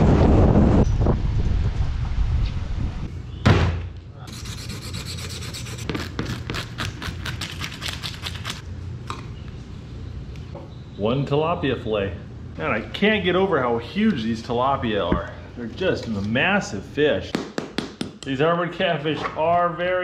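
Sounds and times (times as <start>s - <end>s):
loud thump: 3.4s - 3.9s.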